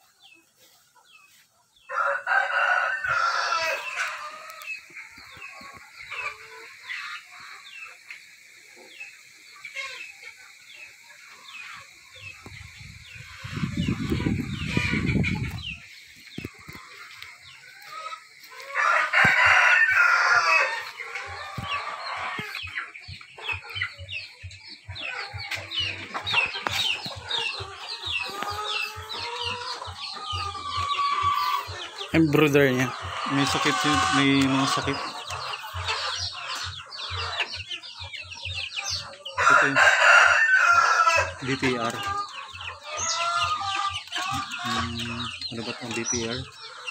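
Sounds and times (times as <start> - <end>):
chickens clucking: 0.0 - 46.9
rooster crowing: 1.9 - 4.3, 18.6 - 22.4, 39.4 - 41.4.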